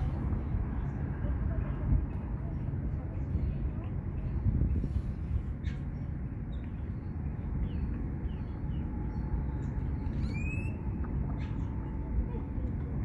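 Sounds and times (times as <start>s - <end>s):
low rumbling noise: 0.0s - 13.0s
bird chirping: 5.6s - 12.0s.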